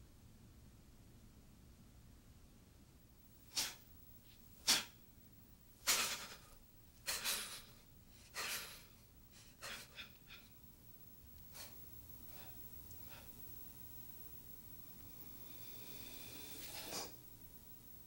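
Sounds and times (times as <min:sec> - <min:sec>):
person breathing forcefully: 0:05.8 - 0:10.4.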